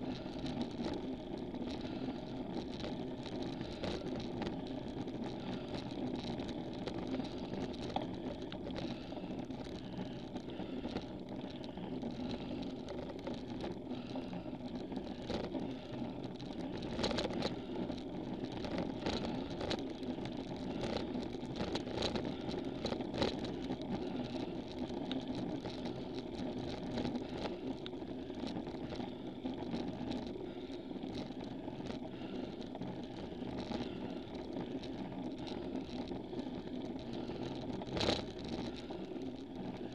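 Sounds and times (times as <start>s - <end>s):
bicycle tyre and drivetrain noise: 0.0s - 39.9s.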